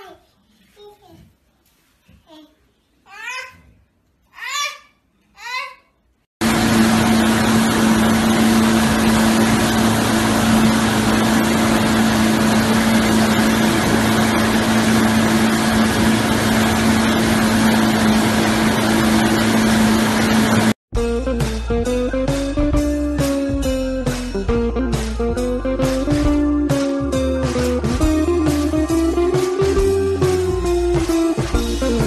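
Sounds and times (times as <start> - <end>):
motorboat engine hum: 6.4 - 20.8.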